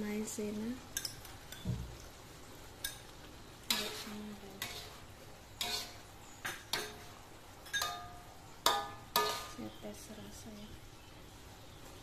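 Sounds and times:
metal spatula clanking on wok: 3.7 - 4.9, 5.6 - 9.7.

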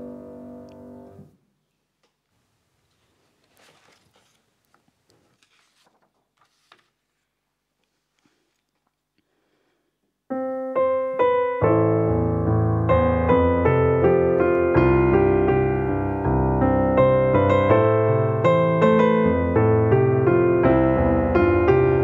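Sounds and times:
solo piano playing chords: 0.0 - 1.4, 10.3 - 22.0.

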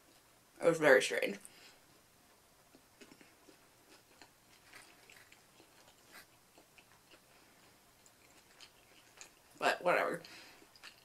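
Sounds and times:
faint chewing mouth clicks: 2.7 - 9.6, 10.2 - 11.0.

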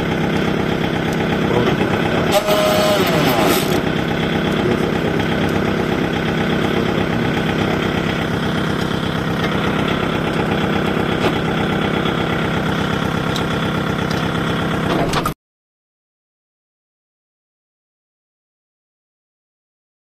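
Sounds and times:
diesel tractor engine idling: 0.0 - 15.2.

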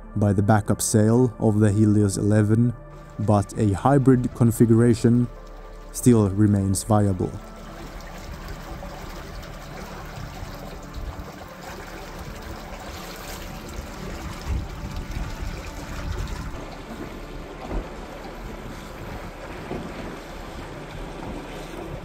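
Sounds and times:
water lapping against boat hull: 2.9 - 22.0
low bumps from water: 7.1 - 22.0.

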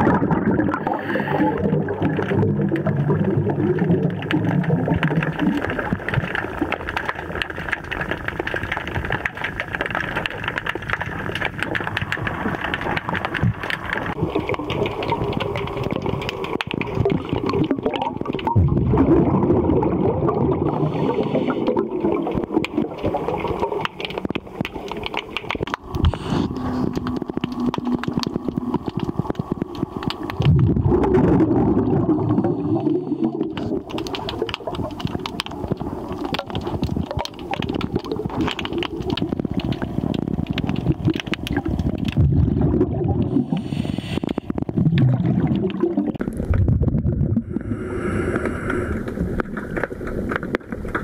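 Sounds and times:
gurgling rumble of moving water: 0.0 - 51.0
underwater sharp clicks crackling: 1.9 - 18.6, 21.6 - 30.6, 33.4 - 42.2, 43.1 - 46.6, 48.3 - 51.0.

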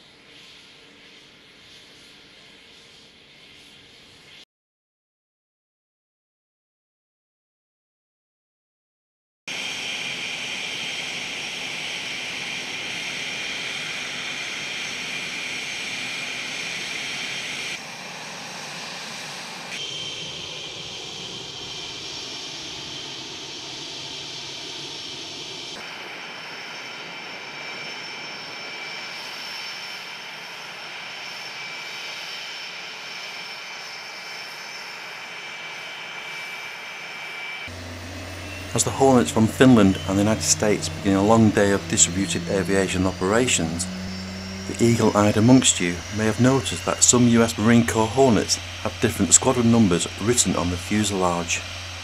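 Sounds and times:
jet engines running: 9.5 - 52.0
turbine whine: 9.5 - 52.0
falling low tone: 37.7 - 52.0.

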